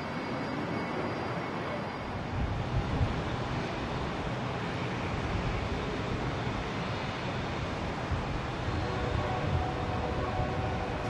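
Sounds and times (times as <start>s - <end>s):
wind buffeting microphone: 2.2s - 11.0s.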